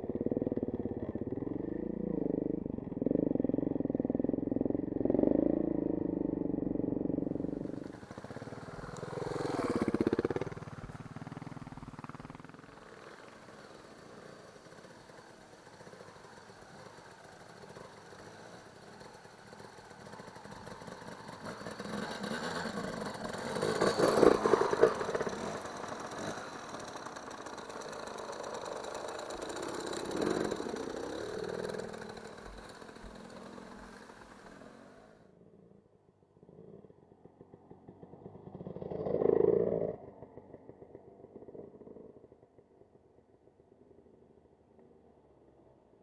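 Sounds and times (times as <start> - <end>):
motorcycle engines running: 0.0 - 35.3.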